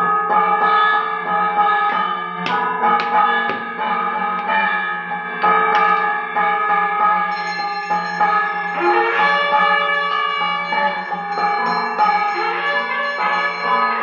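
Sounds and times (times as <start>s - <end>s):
bell-like instrumental music: 7.2s - 14.0s.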